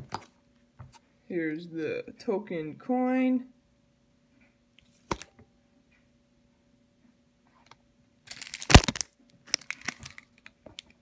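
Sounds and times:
packaging crinkling and rustling: 8.3s - 11.0s.

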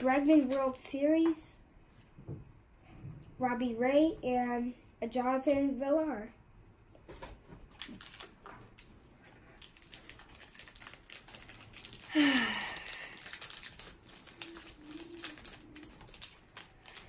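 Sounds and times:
foil wrapper crinkling and tearing: 7.7s - 17.0s.

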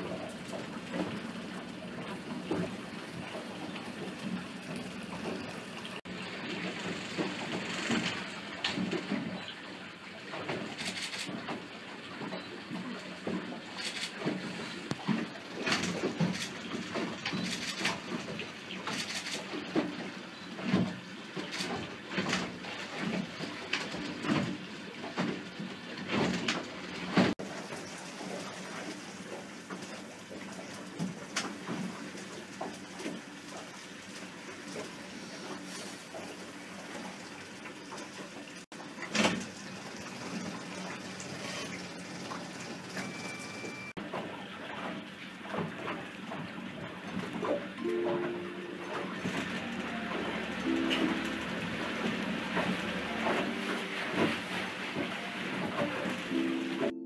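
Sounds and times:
water sloshing against hull: 0.0s - 57.0s
water splash: 37.9s - 57.0s.

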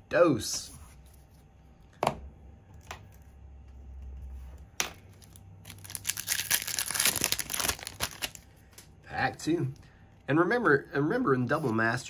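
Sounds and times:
foil wrapper crinkling: 5.2s - 8.5s.

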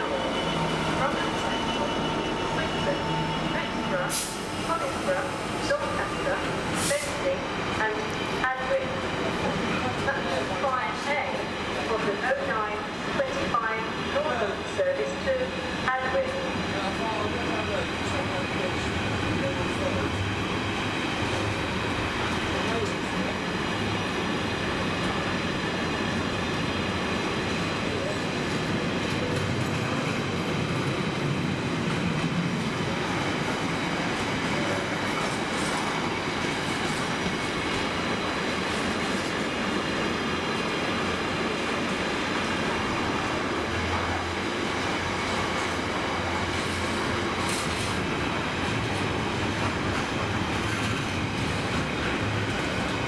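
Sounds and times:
train wheels running on rails: 0.0s - 53.0s.

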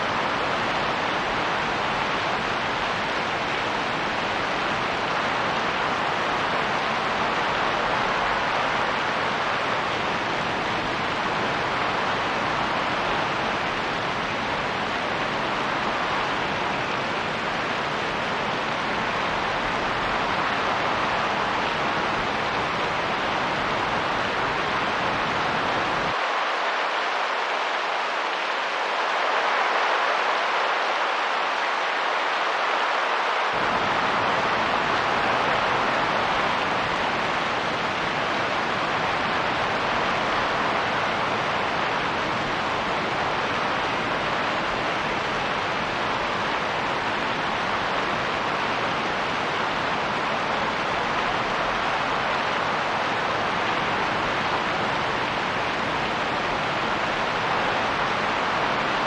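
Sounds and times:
rain and wind hissing: 0.0s - 59.0s.

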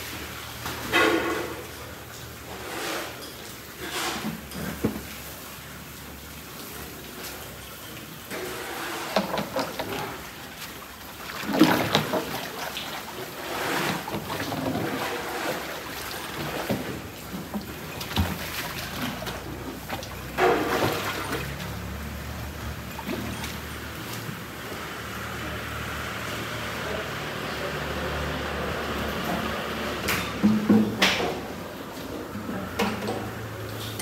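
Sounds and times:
bucket filling: 0.0s - 24.7s
wet feed sloshing in a tub: 0.0s - 34.0s.

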